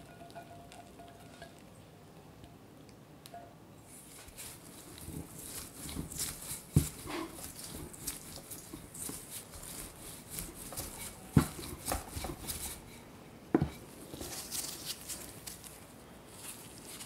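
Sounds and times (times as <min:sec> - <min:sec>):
rolling pin rolling dough: 0:03.9 - 0:15.6
rolling pin knocking on board: 0:10.8 - 0:12.6.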